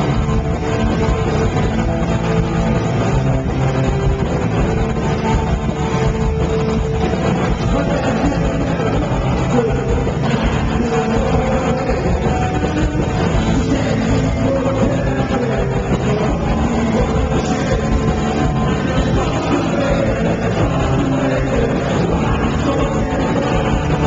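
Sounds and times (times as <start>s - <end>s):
bass guitar: 0.0s - 24.0s
drums: 0.0s - 24.0s
electric guitars: 0.0s - 24.0s
singer's vocals: 7.3s - 24.0s.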